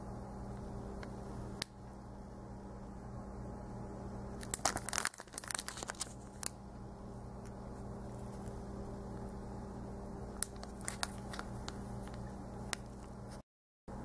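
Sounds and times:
steady low hum: 0:00.0 - 0:14.0
cellophane crinkling: 0:04.4 - 0:06.6, 0:10.4 - 0:13.4.

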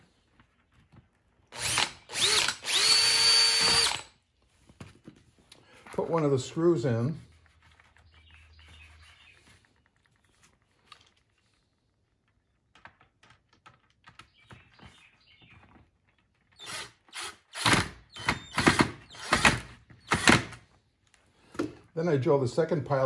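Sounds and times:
cordless driver running in bursts: 0:01.6 - 0:04.1, 0:16.6 - 0:20.6.

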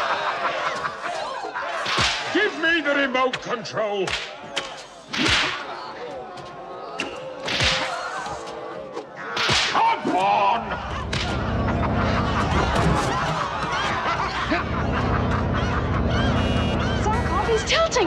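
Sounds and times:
snaps and knocks: 0:01.8 - 0:02.3, 0:04.1 - 0:05.7, 0:06.4 - 0:08.6, 0:09.4 - 0:09.8, 0:11.1 - 0:11.4
whip swishes and cracks: 0:01.8 - 0:02.3, 0:04.1 - 0:05.7, 0:07.4 - 0:08.2, 0:09.4 - 0:09.8
low rumble: 0:14.4 - 0:18.0.

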